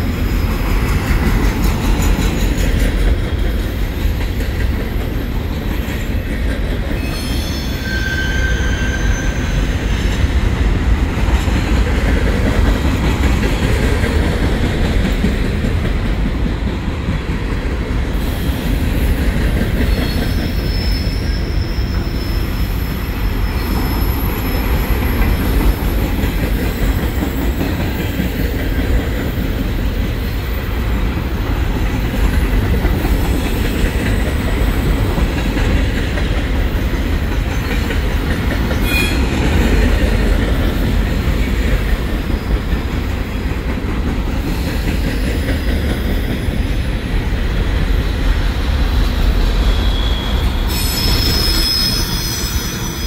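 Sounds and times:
freight train wheels rumbling: 0.0 - 53.0
faint wheel squeals: 49.6 - 53.0.

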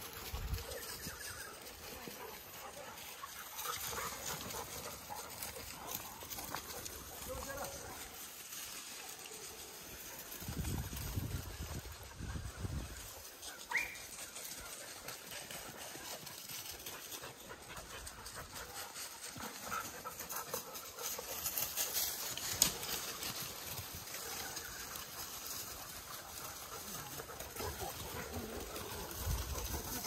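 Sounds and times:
crackling and snapping undergrowth: 20.8 - 30.0.

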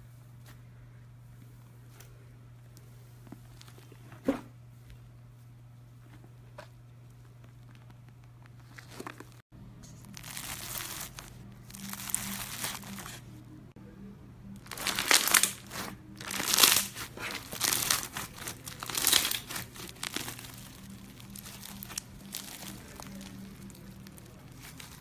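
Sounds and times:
bead slime crunching and crackling: 10.0 - 13.2, 14.6 - 25.0.

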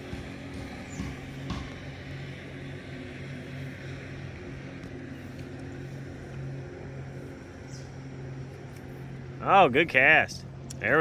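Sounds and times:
distant engine drone: 0.0 - 11.0.

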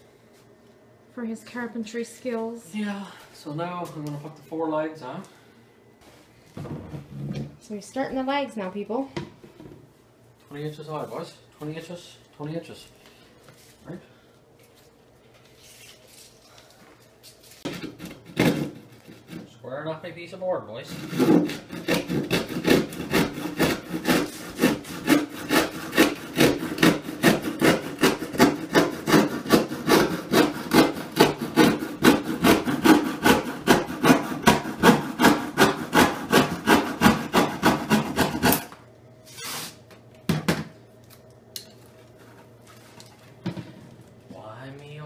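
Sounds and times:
handsaw cutting wood: 20.8 - 38.7.

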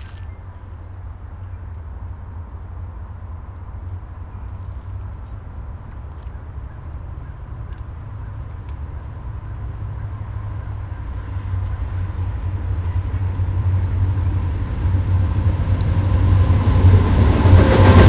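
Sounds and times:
diesel locomotive rumble: 7.0 - 18.0.

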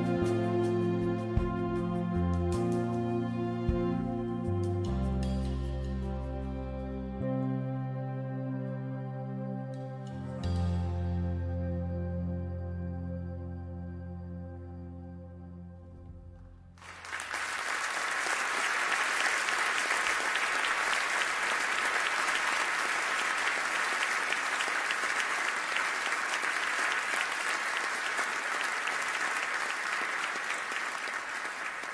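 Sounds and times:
held low music notes: 0.0 - 16.8
audience applauding: 16.8 - 31.9.

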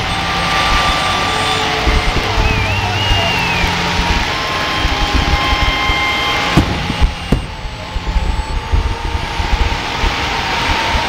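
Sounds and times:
fireworks roaring: 0.0 - 10.8
sharp firework bangs: 6.4 - 7.7.

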